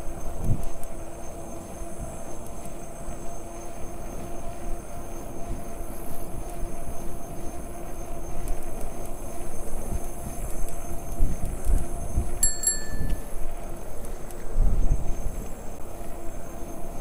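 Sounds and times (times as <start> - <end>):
wind buffeting microphone: 0.0 - 16.4
electric bike motor hum: 0.0 - 17.0
bicycle bell ringing: 12.4 - 13.4.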